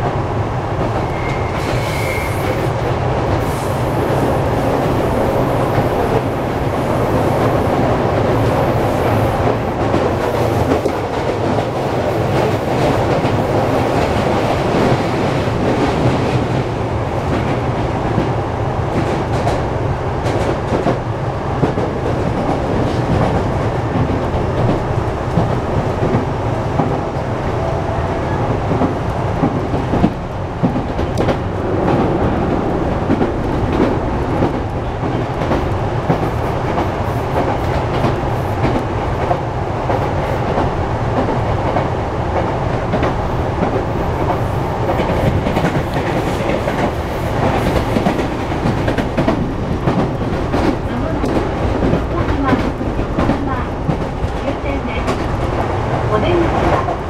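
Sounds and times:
rumble of train wheels on rail: 0.0 - 57.0
clacks over rail joints: 28.7 - 57.0.

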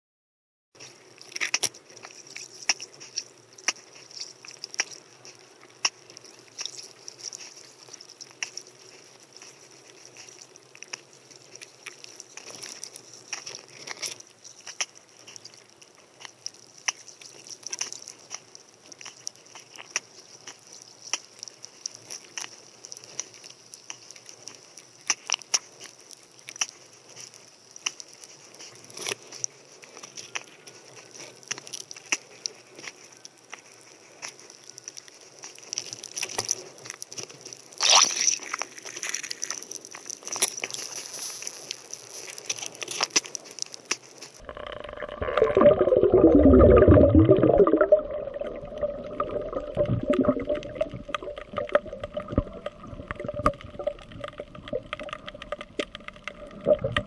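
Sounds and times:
underwater clicks and crackle: 0.8 - 57.0.

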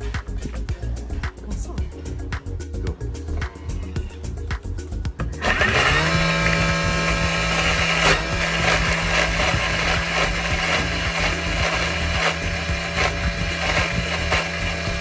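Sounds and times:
food processor motor blending: 5.3 - 15.0.

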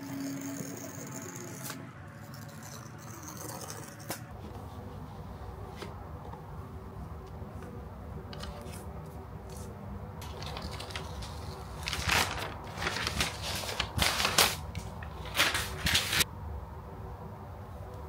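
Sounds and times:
packaging wrap crinkling: 10.2 - 16.2.

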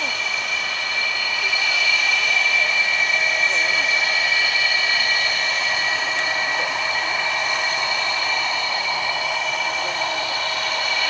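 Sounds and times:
turbine engines idling: 0.0 - 11.0.

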